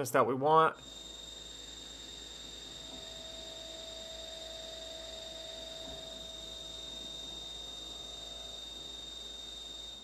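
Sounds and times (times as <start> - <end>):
low hum: 0.8 - 10.0
lower steady tone: 0.8 - 10.0
milling machine high whine: 0.8 - 10.0.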